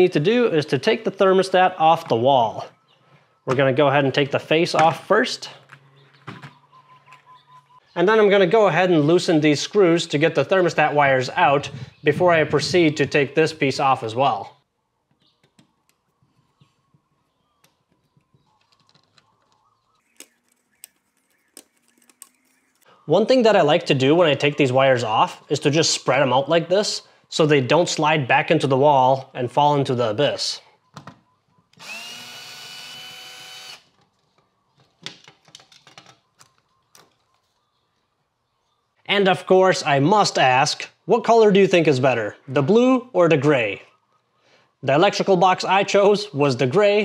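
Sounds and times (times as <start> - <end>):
fingers handling plastic and wires: 17.6 - 22.9, 33.9 - 37.6
cordless drill whining: 31.7 - 33.9.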